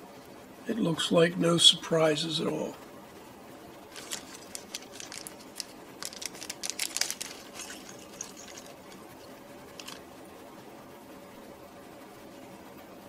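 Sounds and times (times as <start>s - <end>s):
plastic bag crinkling: 3.9s - 10.0s
small components clicking: 3.9s - 10.0s.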